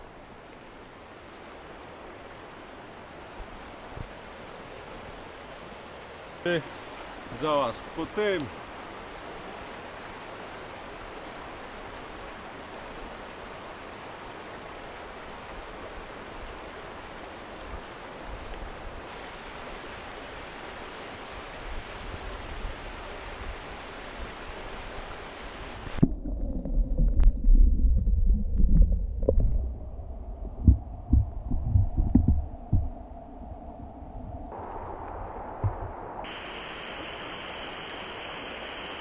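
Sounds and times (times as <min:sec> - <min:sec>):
river water rushing: 0:00.0 - 0:26.0, 0:34.5 - 0:39.0
muffled underwater rumble: 0:25.7 - 0:36.2.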